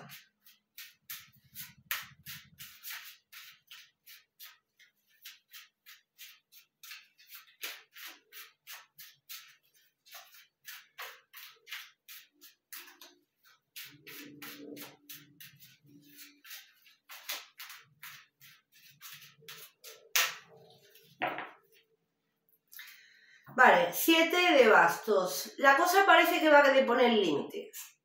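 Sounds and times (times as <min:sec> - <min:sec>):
cards being shuffled by hand: 0:00.0 - 0:21.9.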